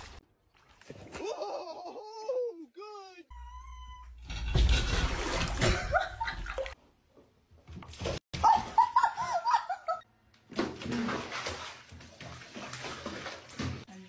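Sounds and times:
water splashing in bathtub: 4.6s - 6.8s, 10.4s - 13.9s
people laughing: 8.4s - 10.0s.

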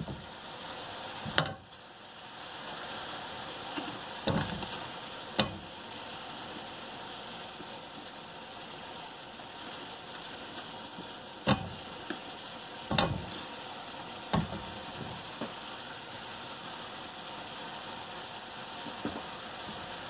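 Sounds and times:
food sizzling in a wok: 0.0s - 20.0s
vegetable pieces knocking into pan: 14.3s - 15.6s.

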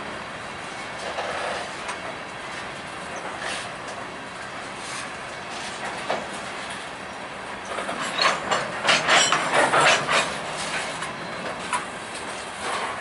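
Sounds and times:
train wheels on rails clickety-clack: 0.0s - 13.0s
metallic clatter: 7.7s - 11.0s.

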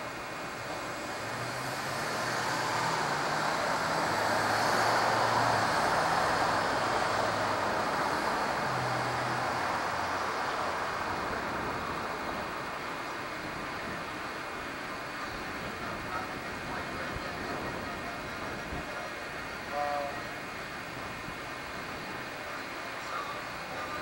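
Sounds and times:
low engine hum: 0.0s - 24.0s
vehicle passing: 0.6s - 14.1s.

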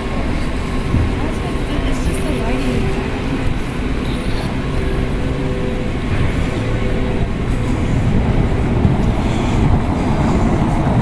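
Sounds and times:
idling engine hum: 0.0s - 11.0s
street traffic rumble: 0.0s - 11.0s.

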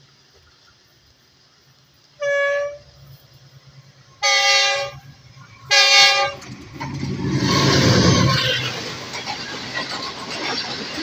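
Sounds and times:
locomotive horn blasts: 2.2s - 2.9s, 4.2s - 5.1s, 5.7s - 6.4s.

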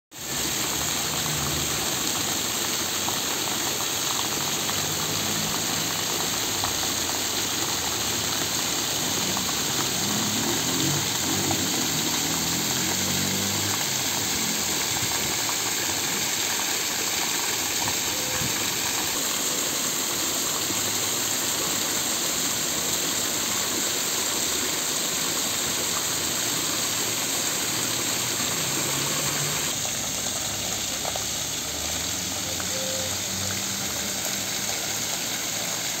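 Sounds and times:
waterfall splashing on rocks: 0.1s - 36.0s.

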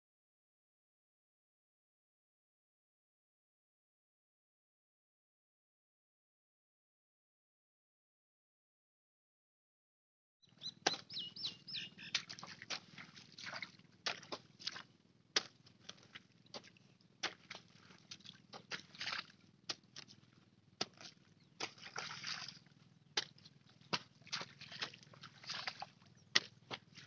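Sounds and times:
bird chirping: 10.4s - 12.4s
water sloshing: 10.7s - 27.0s
hoe chopping wet mud: 10.8s - 11.1s, 12.0s - 27.0s.

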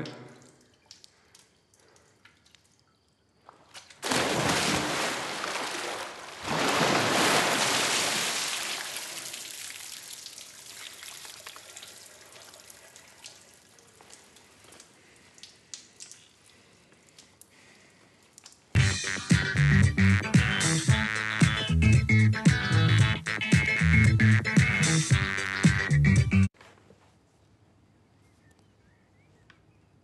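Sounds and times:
water dripping and trickling: 0.0s - 4.0s, 5.0s - 18.8s
water splashing onto tiles: 0.4s - 2.9s, 3.7s - 18.7s.

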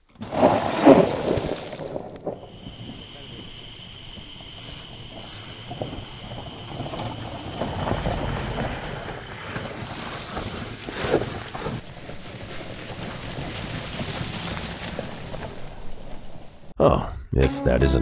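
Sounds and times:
wheels splashing through puddle: 0.0s - 16.7s
tyres crunching through dry leaves: 8.2s - 16.6s.

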